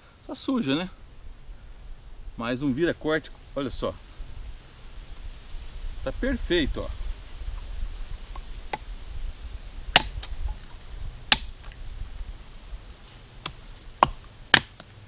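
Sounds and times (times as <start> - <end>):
machete chopping bamboo: 9.9 - 10.6, 11.3 - 11.6, 13.4 - 15.0.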